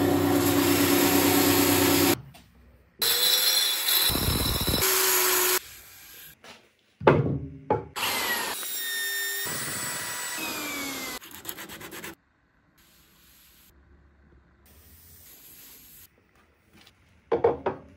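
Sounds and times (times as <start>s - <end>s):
router running: 8.0s - 11.2s.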